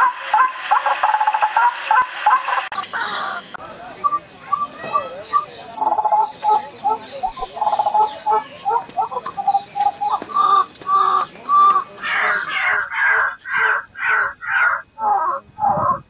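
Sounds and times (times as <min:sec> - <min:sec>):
waterhen clucking and croaking: 0:00.0 - 0:16.0.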